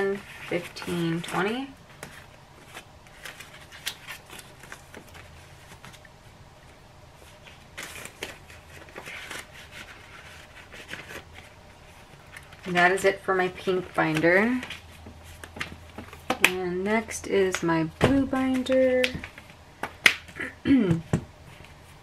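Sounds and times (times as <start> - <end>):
banknotes rustling: 0.0 - 6.1, 7.2 - 17.6.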